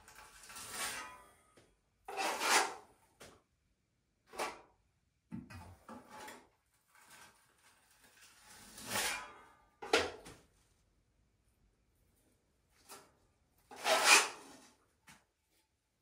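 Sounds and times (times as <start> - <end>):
trowel scraping plaster: 0.0 - 1.3, 2.1 - 3.0, 6.0 - 9.4, 13.7 - 14.8.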